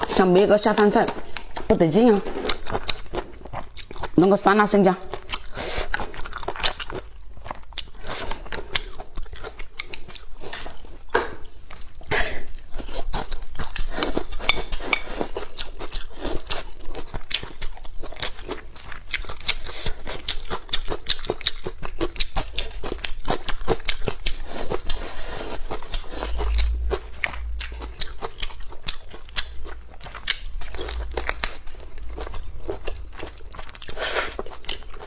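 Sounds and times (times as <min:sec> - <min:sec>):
wet chewing and lip-smacking: 0:00.8 - 0:04.3, 0:05.1 - 0:35.0
dull low thumps: 0:26.3 - 0:28.6.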